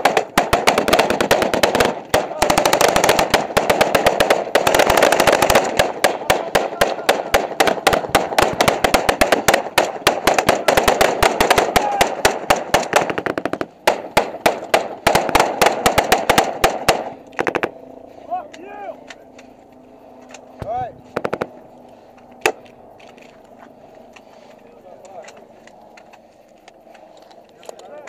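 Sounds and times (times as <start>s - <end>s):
automatic gunfire: 0.0s - 17.8s.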